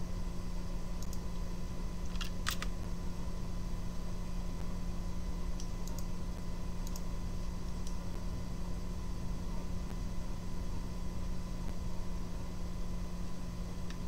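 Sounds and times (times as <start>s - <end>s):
steady low hum: 0.0s - 14.0s
computer mouse clicks: 1.0s - 1.2s, 2.1s - 2.7s, 5.6s - 6.1s, 6.8s - 7.0s.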